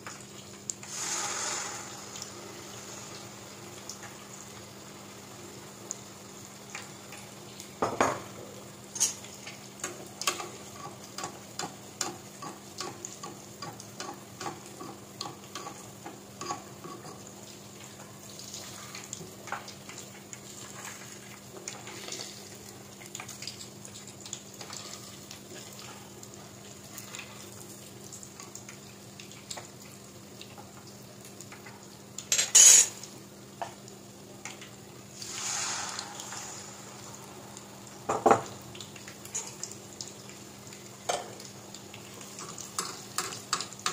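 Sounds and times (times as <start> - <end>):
eggs deep-frying in oil: 0.0 - 43.9
loud burst of noise: 0.9 - 3.8, 35.2 - 38.1.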